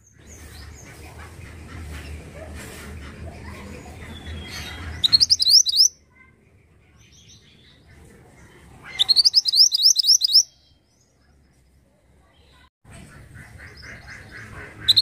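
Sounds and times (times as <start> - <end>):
bird singing high upward notes: 4.4 - 6.0, 9.0 - 11.0.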